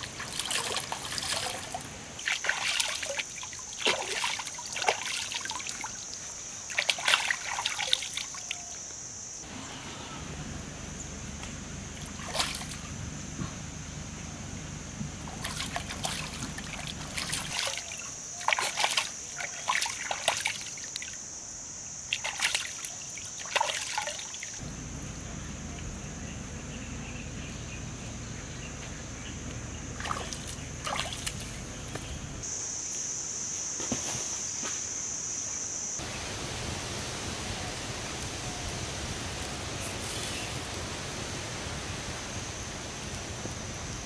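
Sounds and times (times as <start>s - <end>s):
water trickling: 0.0s - 8.6s, 15.2s - 21.2s
water splashing: 0.0s - 8.7s, 11.9s - 13.0s, 15.2s - 21.2s, 22.1s - 24.6s, 30.0s - 32.2s.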